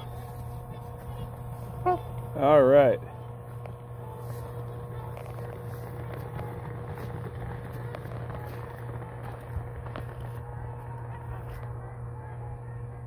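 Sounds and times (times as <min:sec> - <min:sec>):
thin high tone: 0:00.0 - 0:05.4
low hum: 0:00.0 - 0:13.0.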